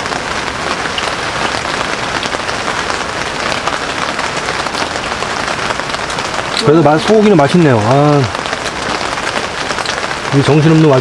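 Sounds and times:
rain pattering on tent fabric: 0:00.0 - 0:11.0.

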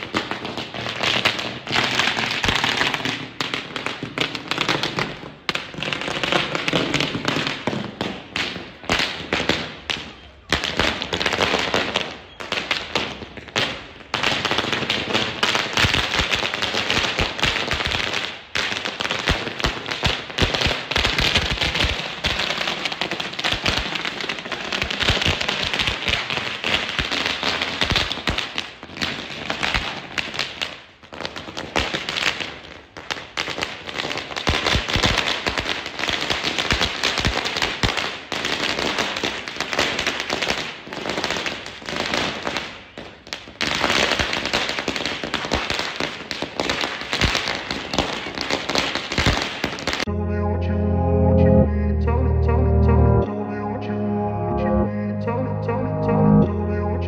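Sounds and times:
firecrackers banging: 0:00.0 - 0:50.1.

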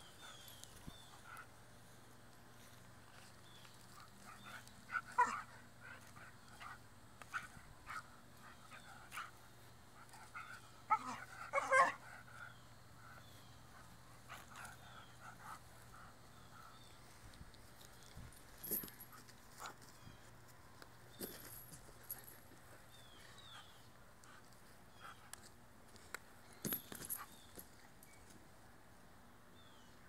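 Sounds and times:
dog barking: 0:05.2 - 0:05.4, 0:10.9 - 0:12.0.

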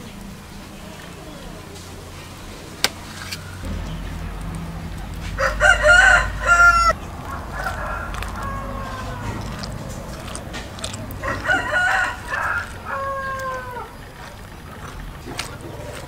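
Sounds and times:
rooster crowing: 0:03.4 - 0:15.0.

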